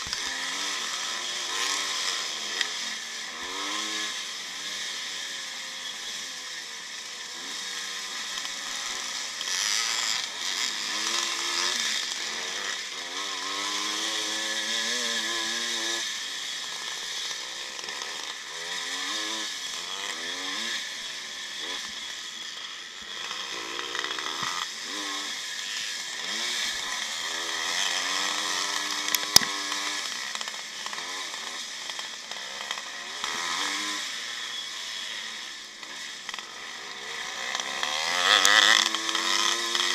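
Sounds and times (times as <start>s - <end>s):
two-stroke engine racing: 0.0s - 39.9s.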